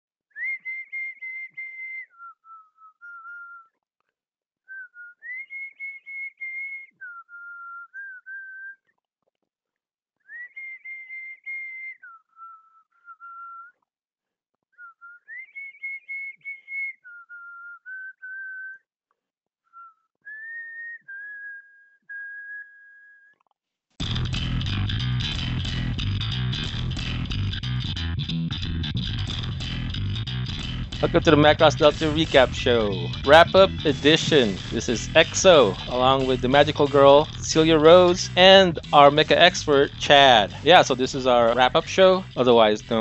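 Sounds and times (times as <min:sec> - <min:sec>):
person whistling a tune: 0:00.3 - 0:03.7, 0:04.7 - 0:08.8, 0:10.2 - 0:13.8, 0:14.8 - 0:18.8, 0:19.7 - 0:23.3, 0:31.0 - 0:39.3.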